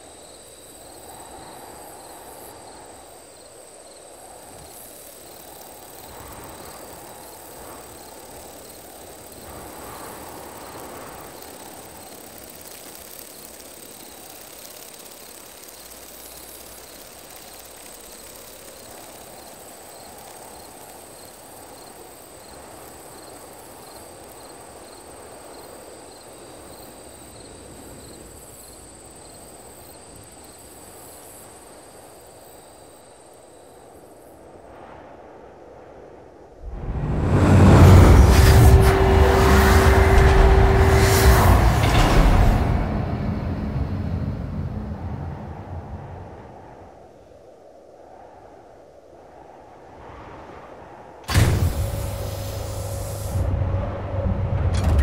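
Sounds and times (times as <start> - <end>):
crickets trilling: 0.0 - 55.0
rushing noise: 36.6 - 47.2, 51.3 - 55.0.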